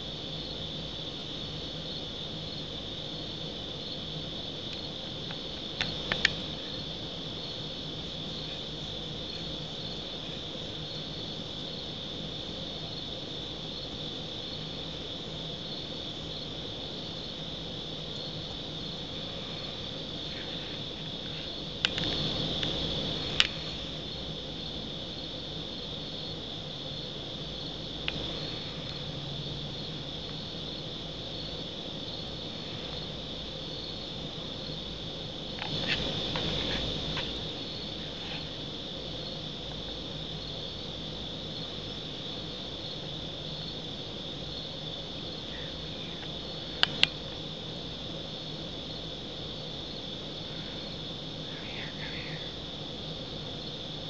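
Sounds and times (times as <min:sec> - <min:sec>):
crickets trilling: 0:00.0 - 0:54.0
sharp clicks: 0:04.7 - 0:06.4, 0:21.8 - 0:22.7
sharp click: 0:21.8 - 0:22.2.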